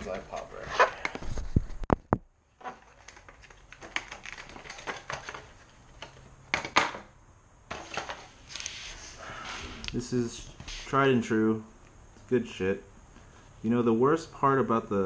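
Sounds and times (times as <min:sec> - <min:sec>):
plastic packaging clicking: 0:02.8 - 0:06.2.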